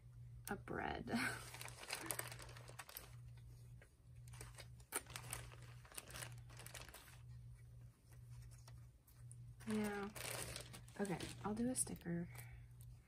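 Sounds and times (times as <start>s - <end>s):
plastic bag crinkling: 1.3s - 3.4s, 4.3s - 7.4s, 9.6s - 11.9s.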